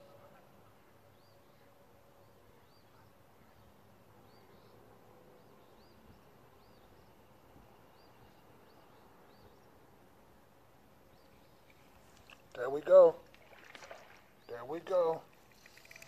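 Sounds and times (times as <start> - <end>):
small bird chirping: 15.4 - 16.0.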